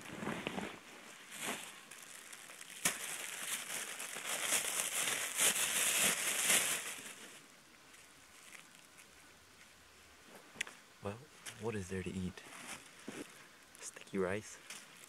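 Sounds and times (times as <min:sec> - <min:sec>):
plastic bag crinkling: 0:01.3 - 0:07.4, 0:08.3 - 0:09.0.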